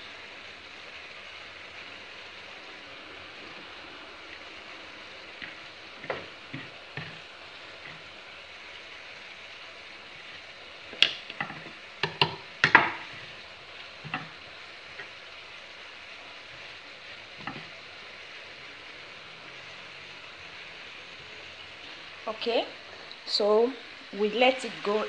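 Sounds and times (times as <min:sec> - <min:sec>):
greens sizzling in a pan: 0:00.0 - 0:25.0
knife knocking and scraping board: 0:17.4 - 0:17.7.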